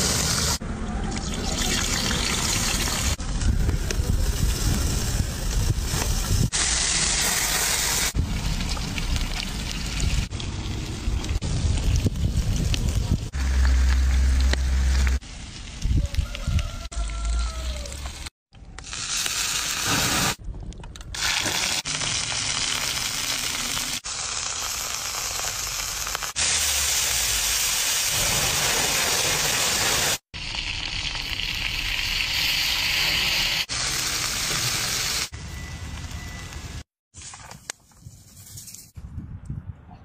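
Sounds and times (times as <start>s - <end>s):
seafood sizzling on hot stone: 21.2s - 35.3s.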